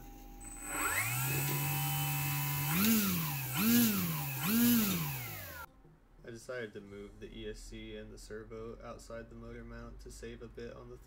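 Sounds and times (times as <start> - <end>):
electric motor spinning propeller: 0.0 - 5.7.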